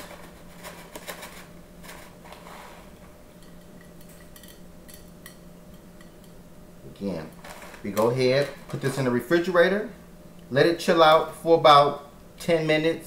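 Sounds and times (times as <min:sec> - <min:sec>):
packet crinkling: 0:07.4 - 0:08.9.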